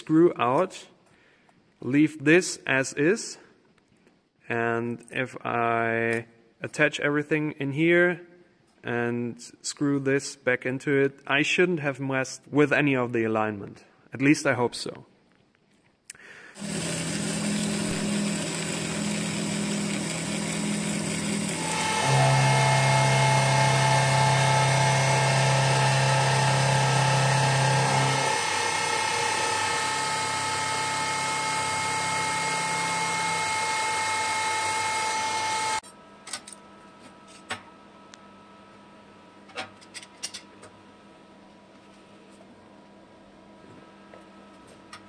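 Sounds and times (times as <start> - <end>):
milling machine whine: 16.6 - 35.9.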